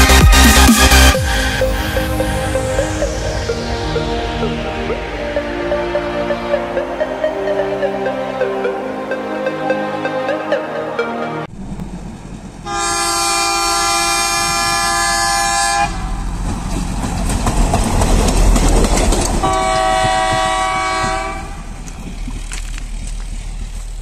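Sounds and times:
rail vehicle engine and wheels: 0:00.0 - 0:24.0
rail vehicle horn blast: 0:12.6 - 0:16.3, 0:19.4 - 0:21.7.

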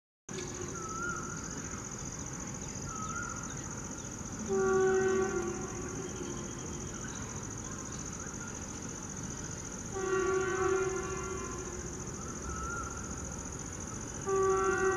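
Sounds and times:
cuckoo calling: 0:00.5 - 0:01.5
locomotive horn blasts: 0:04.5 - 0:06.1, 0:09.9 - 0:11.7, 0:14.2 - 0:14.9.

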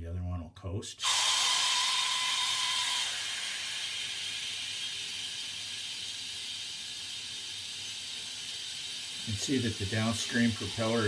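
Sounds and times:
water jet hissing from hose: 0:01.0 - 0:11.0.

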